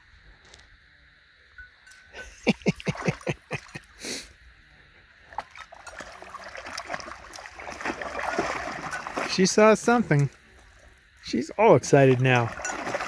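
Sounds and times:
water sloshing: 2.7 - 3.8, 5.2 - 13.0
dog splashing in water: 5.3 - 10.8, 12.0 - 13.0.

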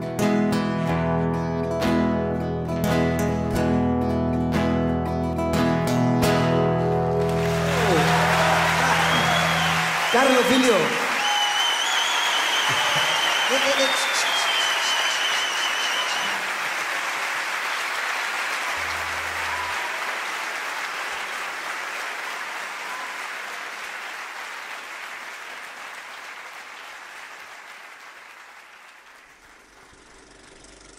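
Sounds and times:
audience applauding: 6.8 - 30.9.

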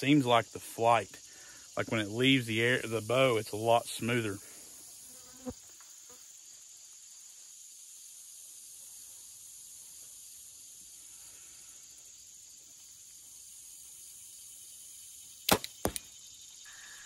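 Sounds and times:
insects droning: 0.0 - 17.0
arrow hitting bag target: 15.5 - 16.1
bowstring snap: 15.5 - 16.2.

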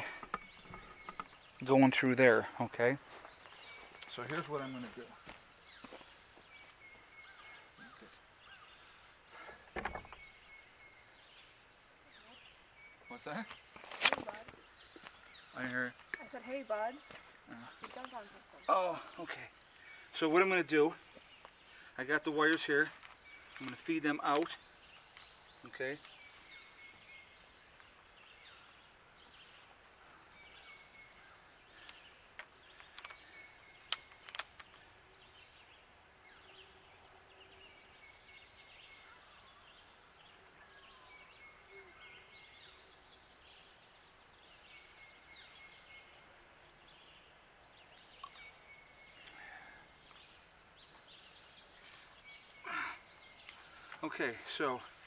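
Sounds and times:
bird calling: 3.2 - 43.8, 44.4 - 55.0
sharp clicks: 48.2 - 48.5.

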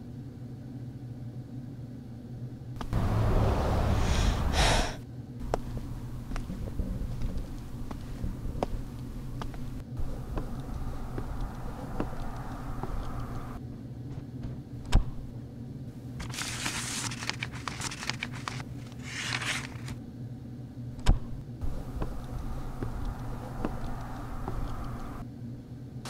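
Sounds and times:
paper envelopes rustling: 16.0 - 20.0.

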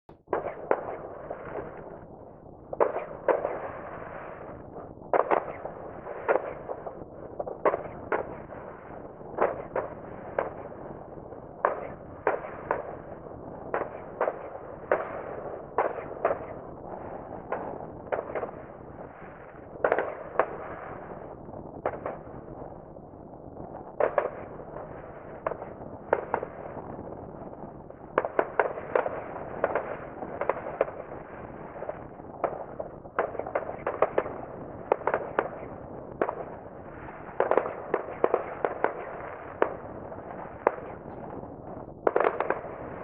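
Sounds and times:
distant fireworks bangs: 0.2 - 2.0, 2.7 - 10.8, 11.5 - 22.4, 23.9 - 27.1, 28.1 - 43.0.

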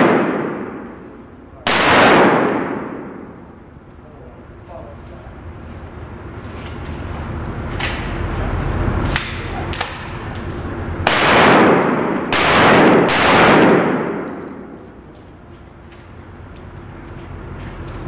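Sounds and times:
pistol shots echoing indoors: 0.0 - 3.6, 11.0 - 15.1.

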